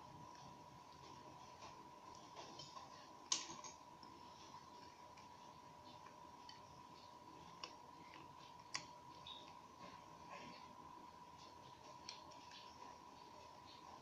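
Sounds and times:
faint clicks and handling noise: 0.0s - 14.0s.

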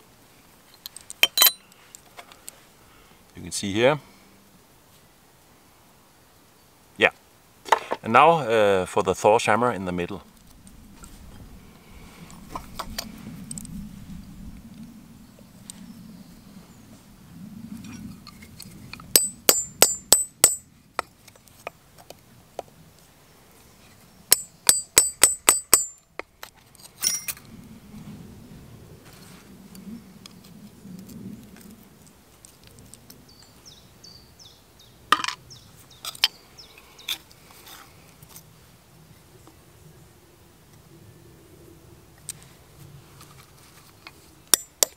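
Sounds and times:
hammer striking chisel on metal: 1.2s - 1.6s, 19.2s - 20.6s, 24.3s - 26.0s, 44.6s - 44.9s.

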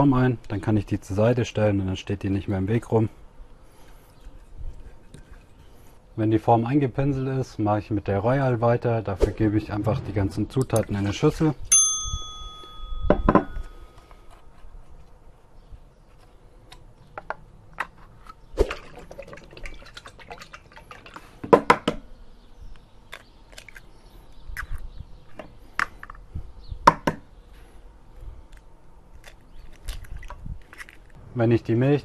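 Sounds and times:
liquid pouring and dripping: 18.6s - 21.4s.

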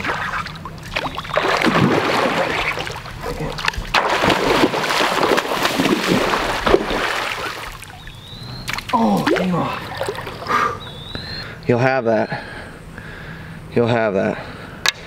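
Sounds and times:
fish splashing in water: 0.0s - 10.5s.

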